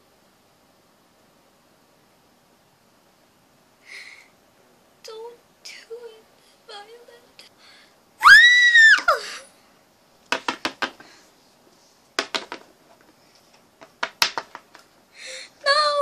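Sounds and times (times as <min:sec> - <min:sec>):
child screaming: 0:08.2 - 0:09.4.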